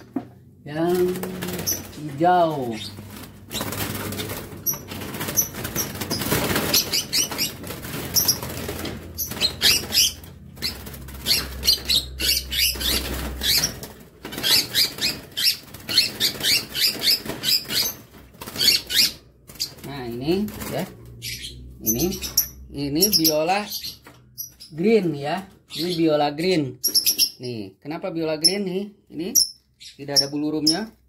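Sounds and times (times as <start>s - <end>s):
birds flapping wings in cage: 0.7s - 23.3s.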